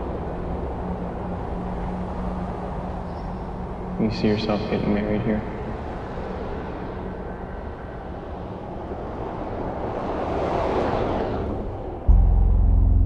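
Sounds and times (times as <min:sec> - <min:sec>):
rushing traffic: 0:00.0 - 0:13.0
vehicle passing: 0:00.0 - 0:13.0
low droning music tone: 0:12.1 - 0:13.0.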